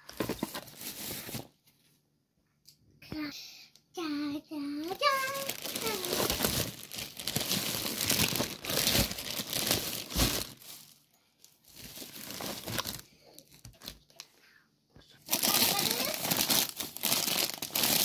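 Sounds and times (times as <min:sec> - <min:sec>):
plastic packaging crinkling: 0:00.0 - 0:01.6, 0:04.9 - 0:14.2, 0:15.3 - 0:18.0.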